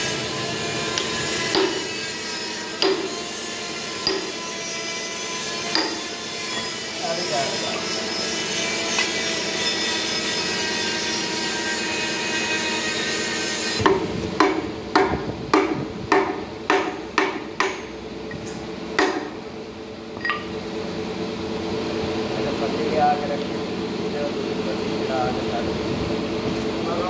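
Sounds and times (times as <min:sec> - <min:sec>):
workshop hum and hiss: 0:00.0 - 0:27.0
hammer striking steel: 0:00.9 - 0:06.8, 0:13.8 - 0:18.0, 0:19.0 - 0:19.4.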